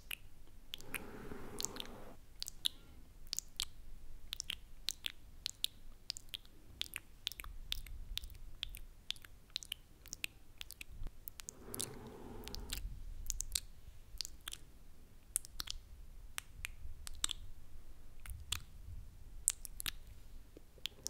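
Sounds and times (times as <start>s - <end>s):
soft breathy rush: 0.8s - 2.2s, 11.4s - 13.1s
wet lip and tongue clicks: 2.4s - 11.6s, 12.6s - 17.5s, 18.2s - 18.8s, 19.4s - 21.0s.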